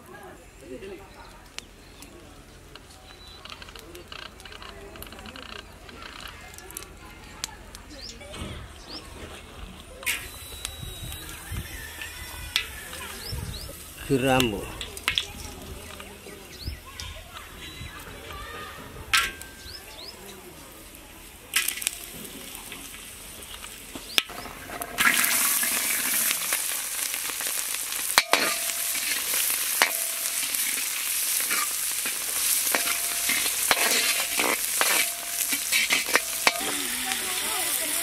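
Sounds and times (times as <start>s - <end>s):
shallots sizzling in hot oil: 10.0s - 38.0s
metal ladle scraping a pan: 24.4s - 38.0s.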